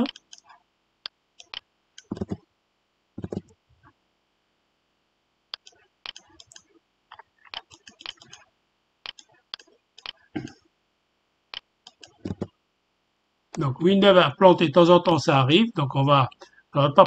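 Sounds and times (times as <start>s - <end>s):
computer mouse clicks: 0.0s - 2.4s, 3.2s - 3.6s, 5.5s - 10.5s, 11.5s - 12.6s.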